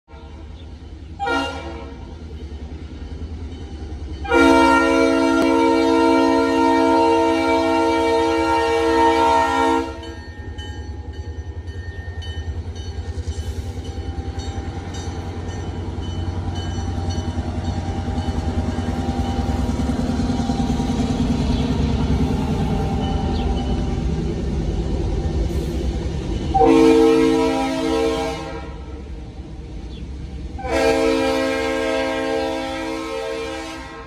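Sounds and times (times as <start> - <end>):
locomotive engines rumbling: 0.1 - 34.0
train cars rolling by: 0.1 - 34.0
locomotive horn: 1.2 - 2.2, 4.2 - 10.2, 26.5 - 29.0, 30.6 - 34.0.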